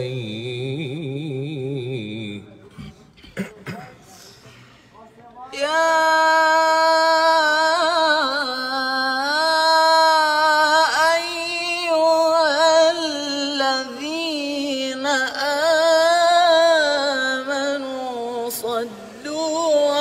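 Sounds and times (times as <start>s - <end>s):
man singing unaccompanied: 0.0s - 2.6s, 5.5s - 20.0s.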